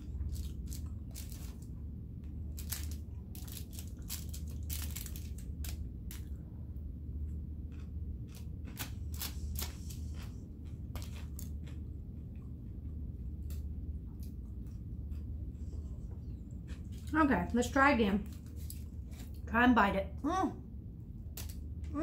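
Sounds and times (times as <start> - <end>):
food wrapping crinkling: 0.0 - 1.7, 2.5 - 6.3, 18.2 - 19.4
steady low hum: 0.0 - 22.0.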